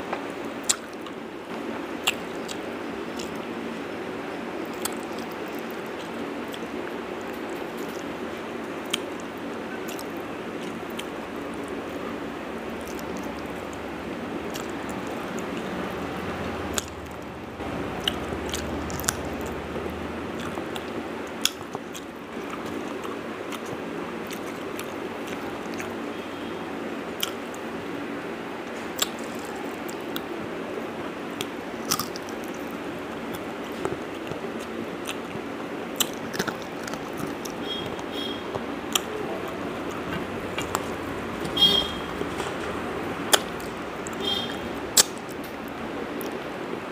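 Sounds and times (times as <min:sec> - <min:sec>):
steady background noise: 0:00.0 - 0:46.9
person chewing food: 0:04.7 - 0:08.1, 0:09.9 - 0:12.0, 0:12.6 - 0:13.8, 0:14.5 - 0:15.8, 0:16.6 - 0:26.0, 0:27.2 - 0:27.5, 0:29.0 - 0:30.3, 0:31.4 - 0:45.5.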